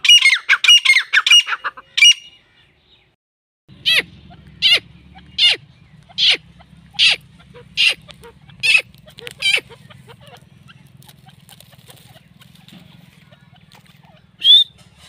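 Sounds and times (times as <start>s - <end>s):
francolin calling: 3.7s - 14.8s.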